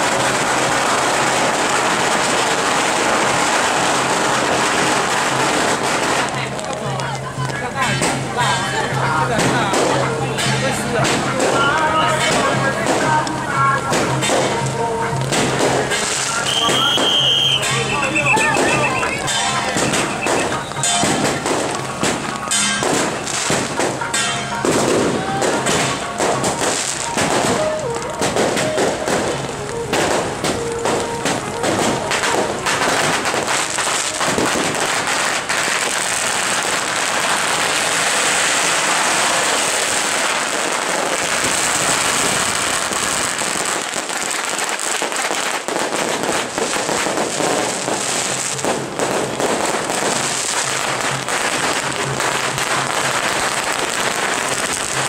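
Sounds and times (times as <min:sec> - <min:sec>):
firecrackers crackling: 0:00.0 - 0:55.0.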